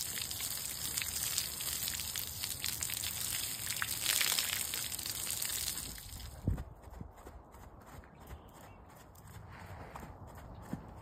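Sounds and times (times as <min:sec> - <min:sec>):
hose spraying water: 0:00.0 - 0:06.2.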